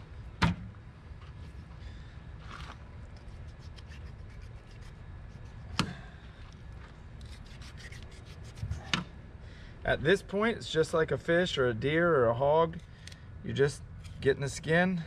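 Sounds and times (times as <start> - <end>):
knife scraping hide: 2.5 - 5.8, 7.2 - 9.0.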